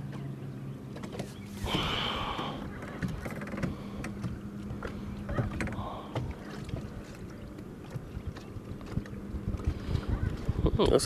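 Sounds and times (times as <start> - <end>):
steady low hum: 0.0 - 11.0
waves lapping against boat hull: 0.0 - 11.0.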